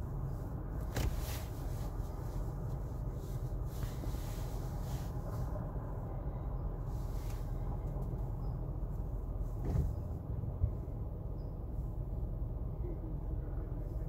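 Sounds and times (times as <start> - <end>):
car engine idling: 0.0 - 14.0
short thump: 0.8 - 1.4, 9.6 - 10.1.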